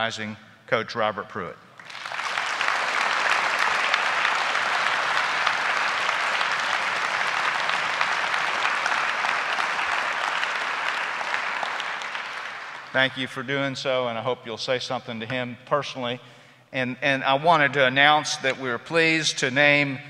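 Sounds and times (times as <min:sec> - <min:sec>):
audience applauding: 0:01.8 - 0:13.1.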